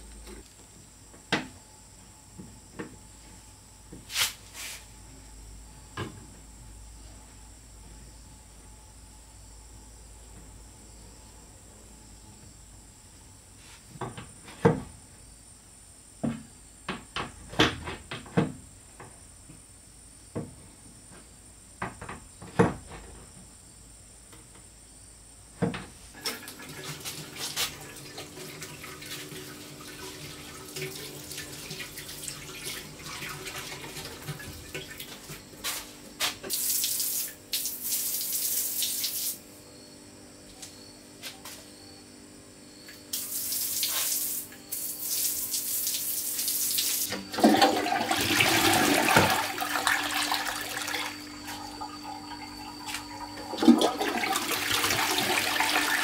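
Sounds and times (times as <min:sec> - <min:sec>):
tap water running into basin: 0:26.2 - 0:35.4, 0:36.5 - 0:39.4, 0:43.1 - 0:56.0
hissing water spray: 0:36.5 - 0:39.4, 0:43.1 - 0:47.1.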